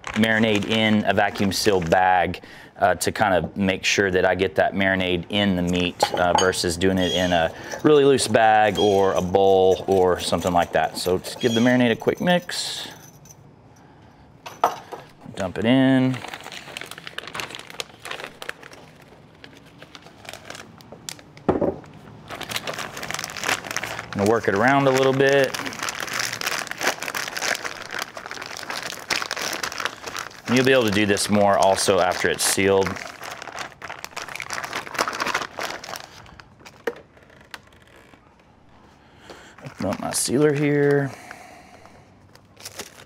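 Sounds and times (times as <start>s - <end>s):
plastic bag crinkling: 0.0s - 2.4s, 15.3s - 38.4s, 39.4s - 41.1s, 42.2s - 43.0s.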